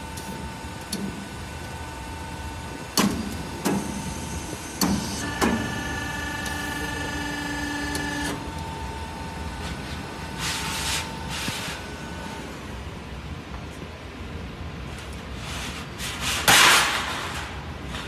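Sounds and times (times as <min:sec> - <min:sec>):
machine whine: 0:00.0 - 0:12.7
machine hum: 0:00.0 - 0:13.5.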